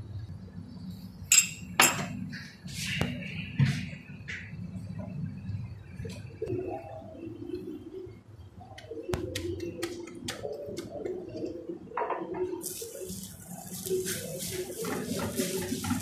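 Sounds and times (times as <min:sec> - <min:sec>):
flatbread sizzling on hot griddle: 0:12.6 - 0:16.0.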